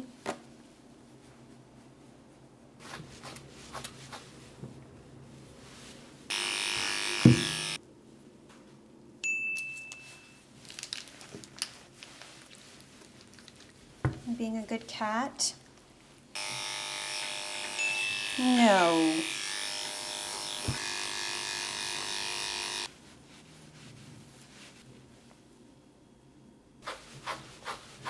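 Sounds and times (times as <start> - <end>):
bell-like ding: 9.2 - 10.4.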